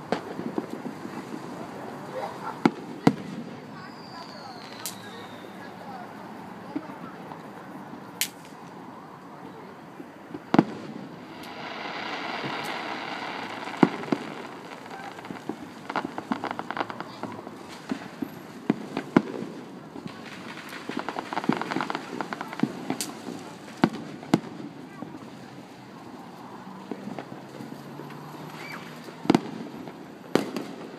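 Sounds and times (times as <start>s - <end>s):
firework crackling: 0.0s - 30.9s
firework shells bursting: 10.4s - 24.8s.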